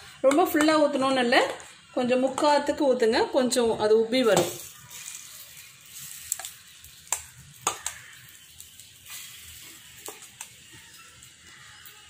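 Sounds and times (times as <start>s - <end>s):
batter sizzling in a pan: 4.1s - 12.0s.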